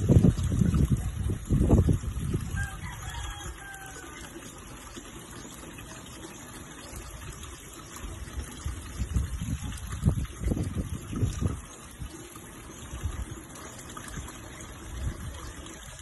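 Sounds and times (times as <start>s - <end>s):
wind buffeting microphone: 0.0s - 3.6s, 7.3s - 12.2s, 14.0s - 16.0s
pond water splashing and trickling: 0.0s - 16.0s.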